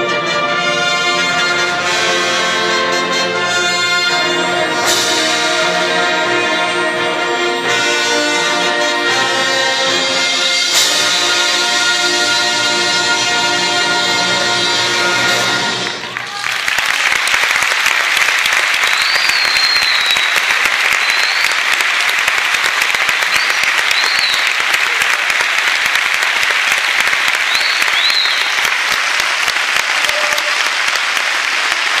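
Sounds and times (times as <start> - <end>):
concert band held chord: 0.0 - 16.2
audience applause: 15.2 - 32.0
high whistles: 18.8 - 21.7, 23.3 - 24.6, 27.5 - 28.7.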